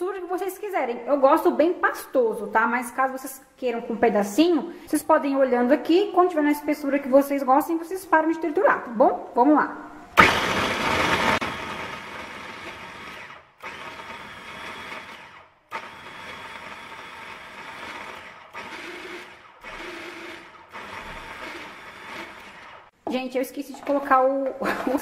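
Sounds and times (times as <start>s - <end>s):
food processor chopping: 10.2s - 22.9s.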